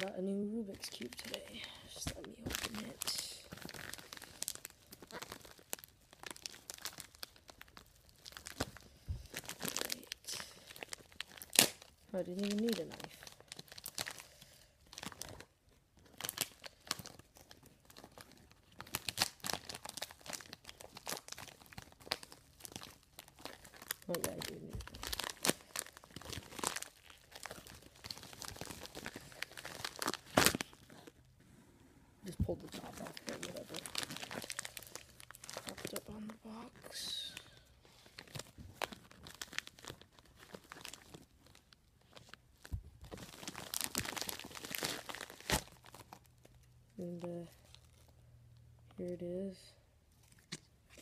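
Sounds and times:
packaging crackling and tearing: 0.8 - 31.2, 32.5 - 48.2.

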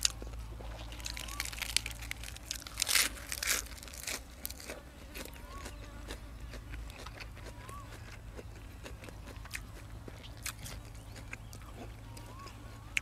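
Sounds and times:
crunchy bites and chewing: 0.0 - 13.0.

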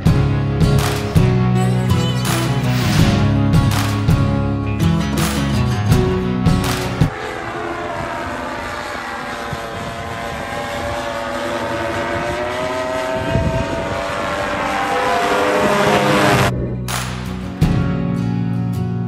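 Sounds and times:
paramotor engine and propeller: 6.6 - 16.5.

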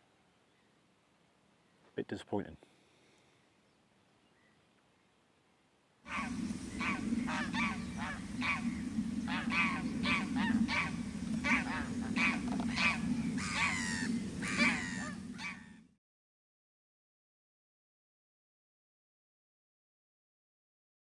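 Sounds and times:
geese honking: 6.1 - 15.8
low rumble: 6.1 - 16.0.

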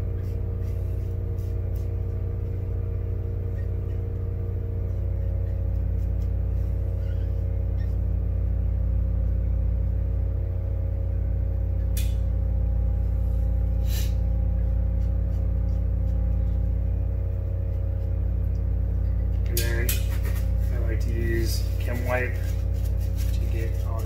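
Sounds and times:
vacuum pump droning: 0.0 - 24.0.

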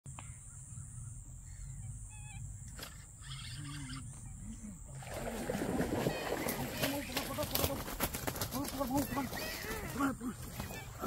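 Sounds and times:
bird chirp: 0.1 - 4.8
insect drone: 0.1 - 7.4.

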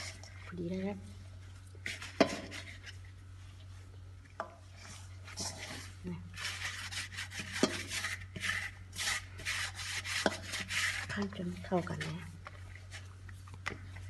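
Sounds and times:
dough scraping against metal bowl: 0.0 - 1.2, 1.8 - 3.2, 4.7 - 13.2.

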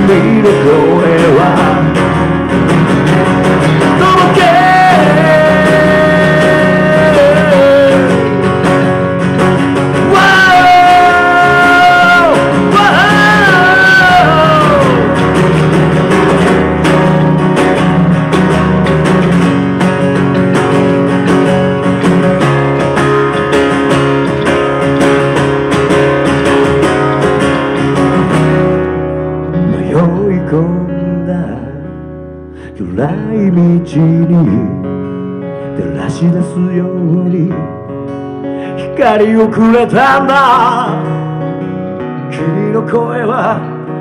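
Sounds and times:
man singing long notes: 0.0 - 2.1, 3.7 - 8.6, 9.8 - 15.4, 38.8 - 41.1
acoustic guitar strumming: 0.0 - 44.0
bass guitar: 0.0 - 44.0.

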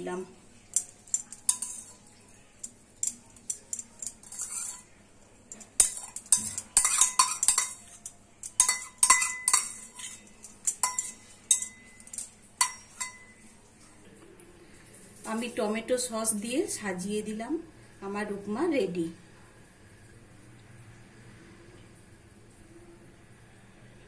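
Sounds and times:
metal spoon scraping metal bowl: 0.7 - 13.4.

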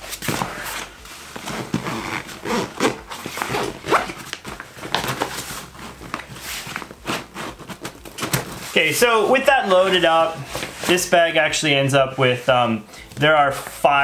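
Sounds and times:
fabric rustling: 0.0 - 11.5
backpack zipper being pulled: 0.2 - 4.2.

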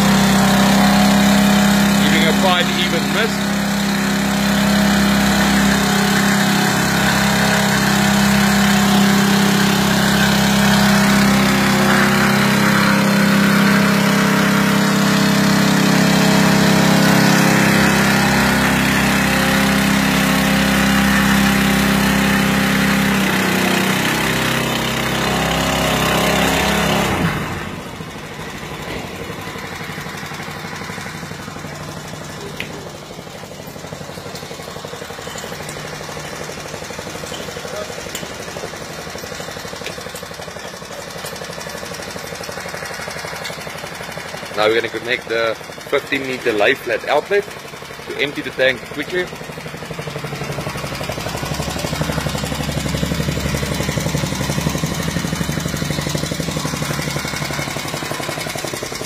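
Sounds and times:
water pump engine running: 0.0 - 59.0.

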